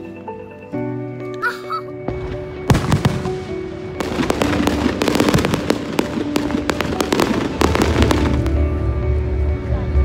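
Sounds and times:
fireworks crackling and banging: 0:02.1 - 0:10.0.

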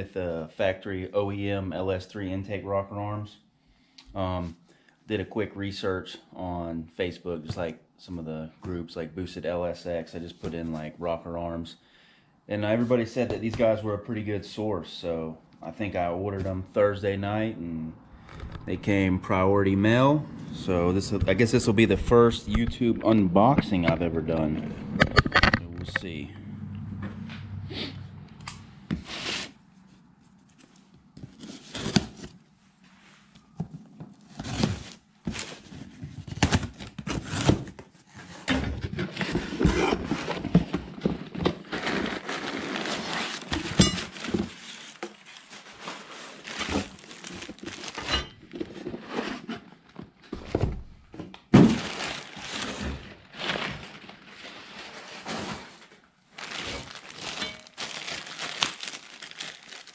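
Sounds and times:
cardboard and tape scraping: 0:28.9 - 0:29.6, 0:34.2 - 0:49.9
paper and plastic bags crinkling: 0:40.0 - 0:49.0, 0:51.6 - 0:59.9.

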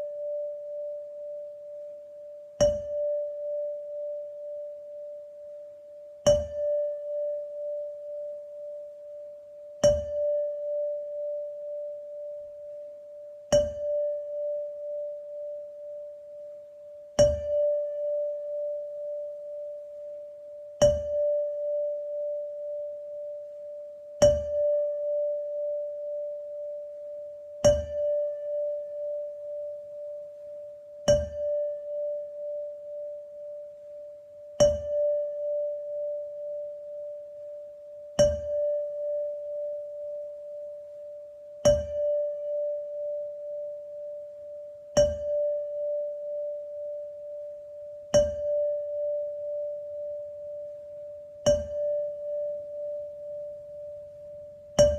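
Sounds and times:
tuned percussion struck with mallet: 0:02.6 - 0:04.2, 0:06.2 - 0:08.2, 0:09.8 - 0:11.4, 0:13.4 - 0:15.1, 0:17.2 - 0:19.7, 0:20.8 - 0:22.8, 0:24.2 - 0:25.7, 0:27.6 - 0:29.2, 0:31.0 - 0:32.6, 0:34.5 - 0:36.2, 0:38.2 - 0:40.2, 0:41.6 - 0:43.5, 0:44.9 - 0:46.4, 0:48.1 - 0:49.6, 0:51.4 - 0:53.4.

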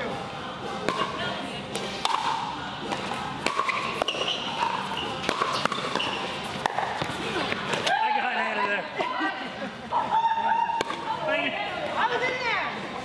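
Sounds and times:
ball bouncing on court: 0:02.9 - 0:07.2.

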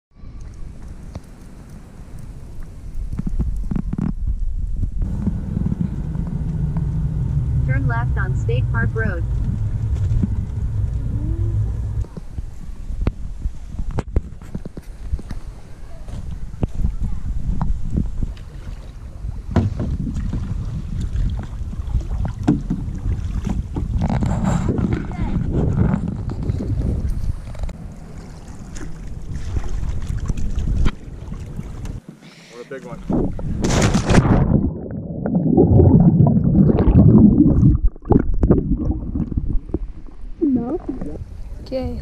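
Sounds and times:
wind rumbling on microphone: 0:00.1 - 0:32.1, 0:32.9 - 0:42.0
underwater churning and bubbling: 0:17.8 - 0:32.1, 0:33.0 - 0:41.8
paddles splashing in water: 0:18.1 - 0:24.2, 0:27.3 - 0:40.4.

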